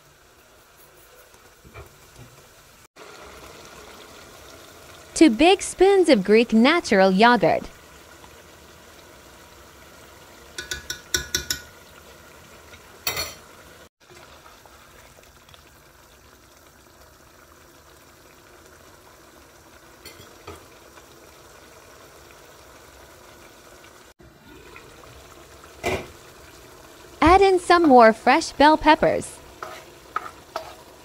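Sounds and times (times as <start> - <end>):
low simmering hiss: 0.0 - 31.0
spoon knocking against pot: 10.6 - 11.7.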